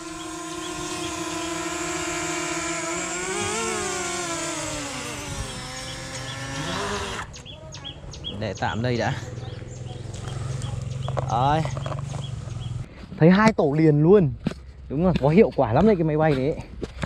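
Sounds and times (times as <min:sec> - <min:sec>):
drone propellers whining: 0:00.0 - 0:07.5.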